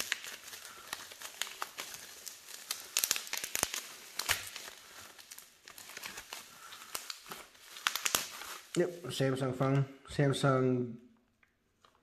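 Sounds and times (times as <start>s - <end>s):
bubble wrap crinkling: 0.0s - 9.7s.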